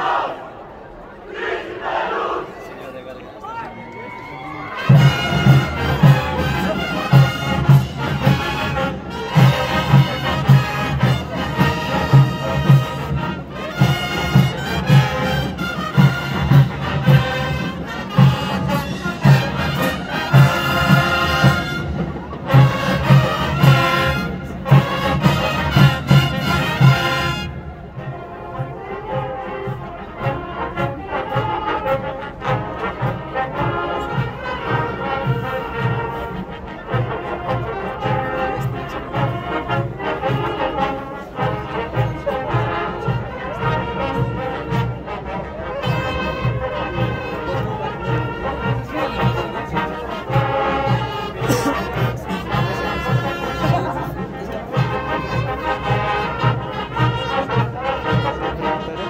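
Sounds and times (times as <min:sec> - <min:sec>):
marching band brass: 0:00.0 - 0:59.0
steady drum beat: 0:04.8 - 0:28.0, 0:45.8 - 0:58.4.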